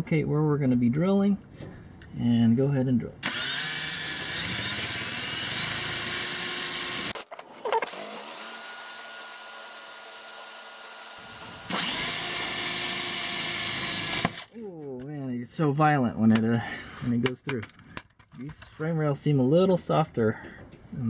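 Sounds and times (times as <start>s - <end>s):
electric drill boring into metal: 3.2s - 14.5s.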